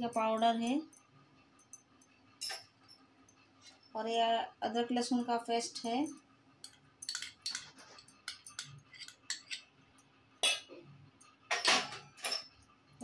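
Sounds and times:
spoon clinking against metal bowl: 5.8s - 9.7s.

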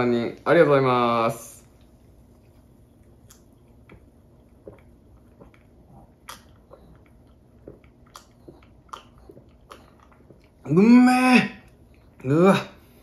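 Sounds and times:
gulping and swallowing: 3.0s - 10.8s.

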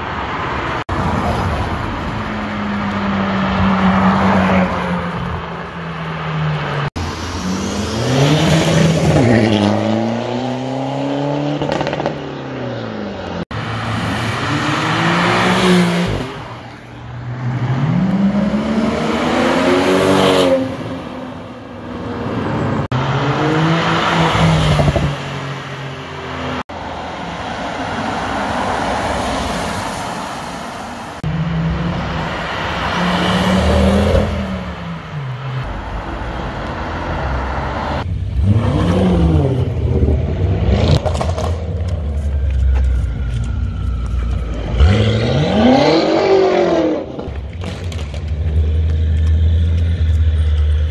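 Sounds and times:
car engines accelerating: 0.1s - 50.9s.

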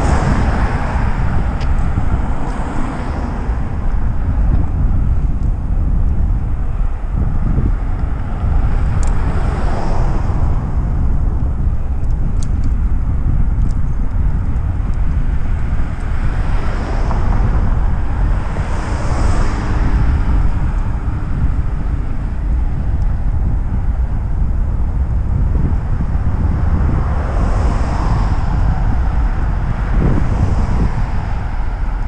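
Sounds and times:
passing cars rushing: 0.0s - 32.0s
wind rumble on microphone: 0.0s - 32.0s
light ticks: 12.0s - 12.8s.

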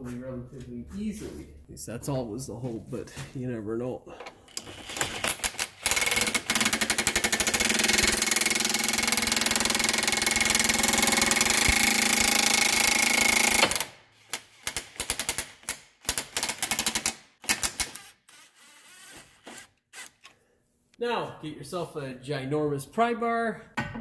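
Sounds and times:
impact wrench hammering: 5.4s - 13.9s.

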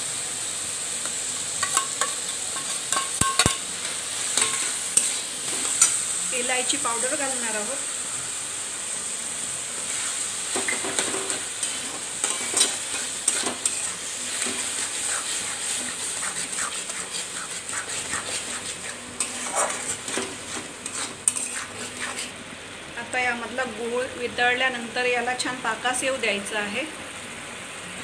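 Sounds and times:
food sizzling in fat: 0.0s - 28.0s
metal spatula scraping metal pan: 10.5s - 22.4s.

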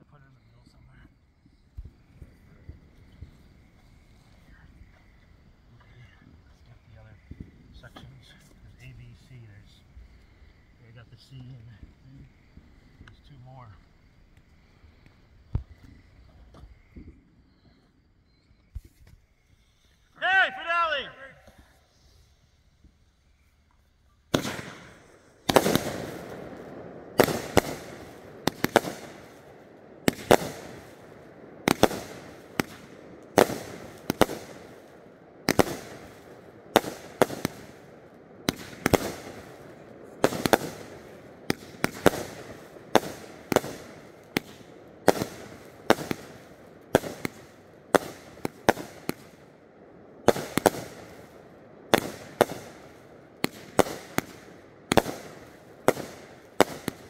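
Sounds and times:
fireworks bangs: 0.0s - 18.0s, 18.6s - 57.0s
fireworks crackling: 0.0s - 57.0s.

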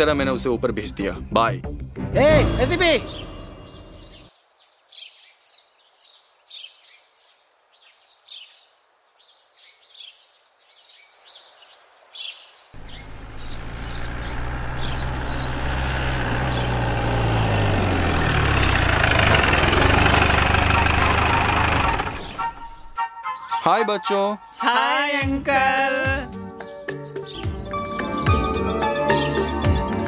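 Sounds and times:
birds chirping: 2.2s - 25.9s, 26.5s - 30.0s
vehicle engine approaching: 12.8s - 23.0s.

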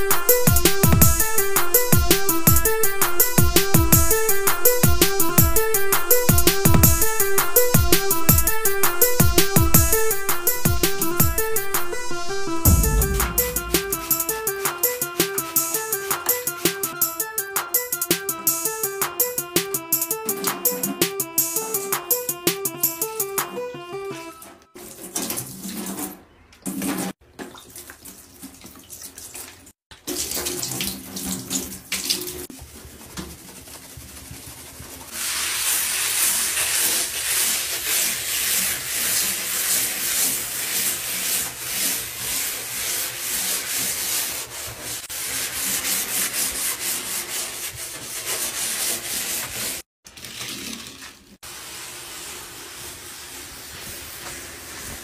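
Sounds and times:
brush scrubbing sink: 0.0s - 12.0s, 12.7s - 16.6s, 24.8s - 55.0s
tap water running into basin: 26.6s - 32.5s.

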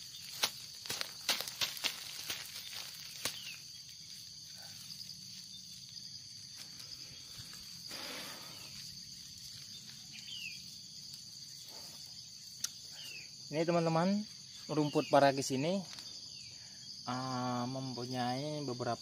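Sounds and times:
grass rustling: 0.0s - 13.2s
insect chorus drone: 0.0s - 19.0s.

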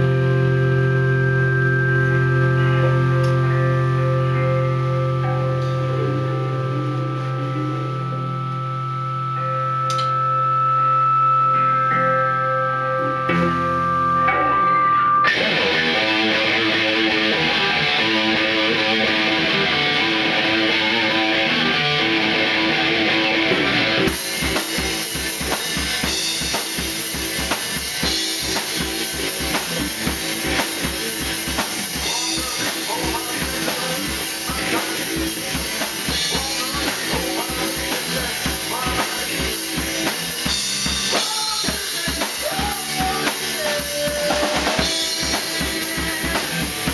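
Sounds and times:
bass guitar: 0.0s - 46.9s
electric guitars: 0.0s - 46.9s
drum kit beat: 13.0s - 46.9s
man singing: 30.8s - 40.4s, 41.0s - 46.9s.

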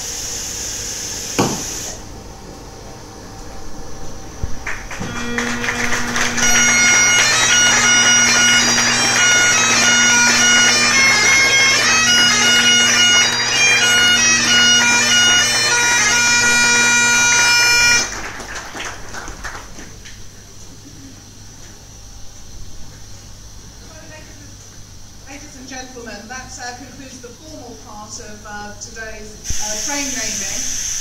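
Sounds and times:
bagpipe drones: 4.6s - 18.4s
bagpipe chanter melody: 4.7s - 18.4s.

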